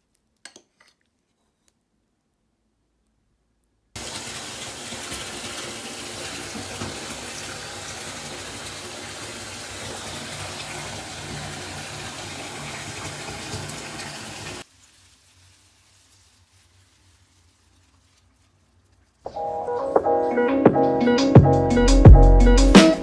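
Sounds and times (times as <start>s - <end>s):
water pouring into bathtub: 4.0s - 18.2s.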